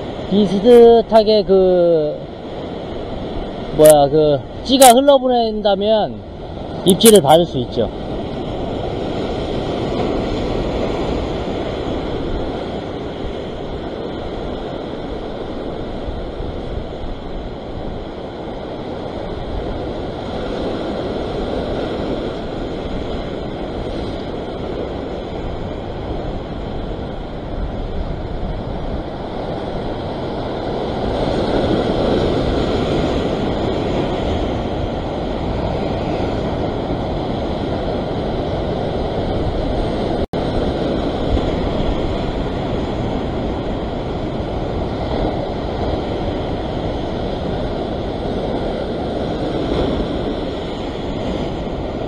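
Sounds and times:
sea surf breaking on rocks: 0.0 - 52.0
wind buffeting microphone: 0.0 - 52.0.

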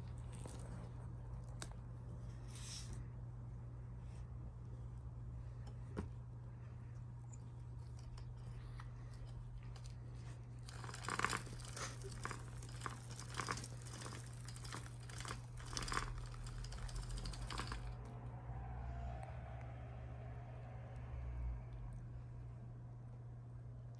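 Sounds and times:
kittens scratching and crinkling: 0.0 - 3.1, 6.6 - 18.0
steady low hum: 0.0 - 23.9.

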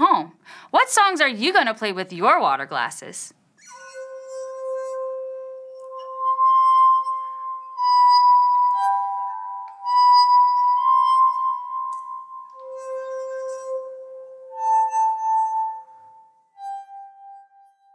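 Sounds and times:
ringing glass tones: 3.6 - 17.9.

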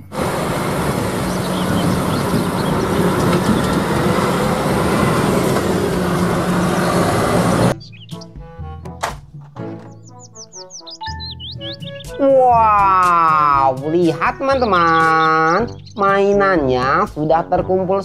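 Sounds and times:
diesel truck engine running: 0.0 - 8.1
road noise: 0.0 - 8.4, 13.0 - 17.2.

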